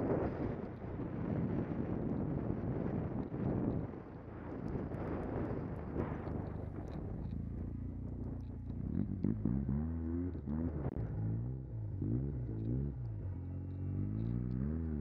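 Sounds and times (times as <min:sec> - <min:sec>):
wind rush on microphone: 0:00.0 - 0:09.5.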